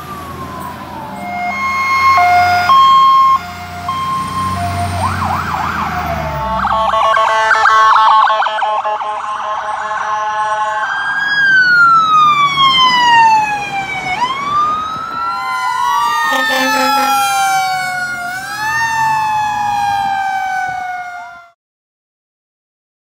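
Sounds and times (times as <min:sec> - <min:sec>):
pulsing siren: 0:00.0 - 0:21.6
second wailing siren: 0:00.0 - 0:21.6
wailing siren: 0:00.0 - 0:21.6
vehicle horn: 0:06.3 - 0:10.8, 0:16.3 - 0:17.9.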